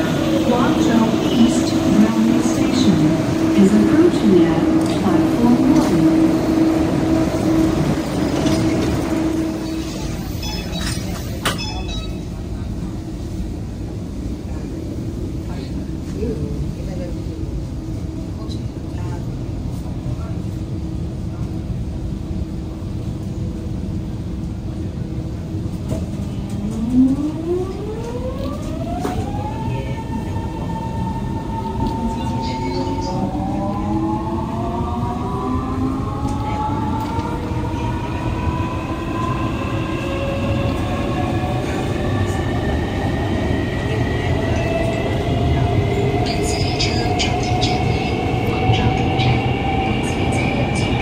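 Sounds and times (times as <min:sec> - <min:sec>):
metro train humming: 0:00.0 - 0:51.0
short high beeps: 0:10.4 - 0:12.3.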